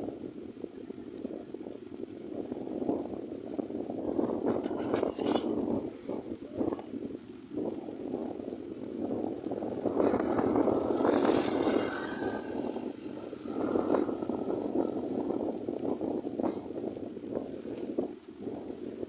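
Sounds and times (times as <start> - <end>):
wind buffeting microphone: 0.0 - 19.0
tricycle motor whine: 8.9 - 17.0.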